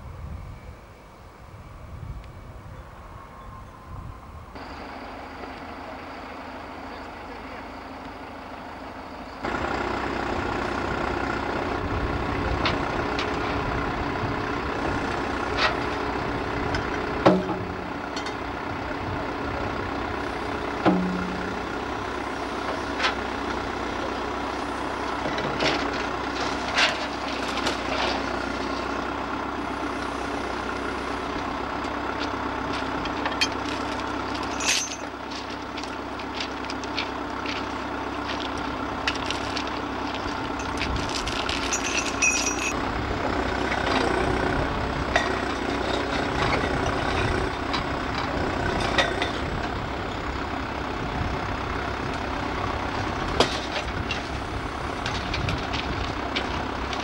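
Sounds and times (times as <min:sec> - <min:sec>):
diesel engine running: 0:00.0 - 0:57.0
metal clanks and knocks: 0:16.7 - 0:18.5, 0:20.8 - 0:21.7, 0:32.2 - 0:42.8, 0:45.1 - 0:49.6, 0:53.4 - 0:54.3.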